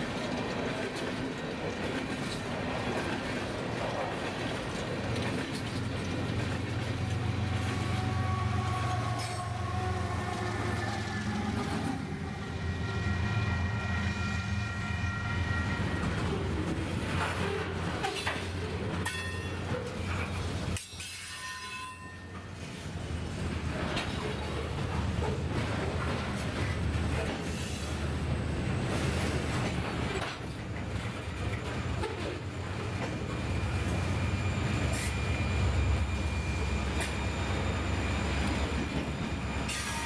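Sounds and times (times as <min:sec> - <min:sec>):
wheels clicking over rail joints: 0:00.0 - 0:07.5, 0:16.2 - 0:22.8
freight train rumbling: 0:00.0 - 0:40.0.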